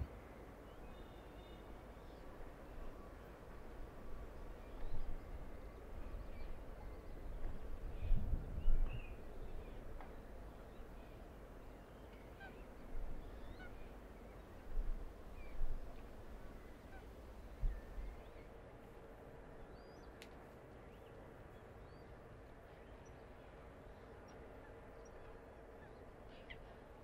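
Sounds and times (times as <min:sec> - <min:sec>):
wind rumbling on microphone: 0:04.0 - 0:10.1, 0:17.3 - 0:18.4.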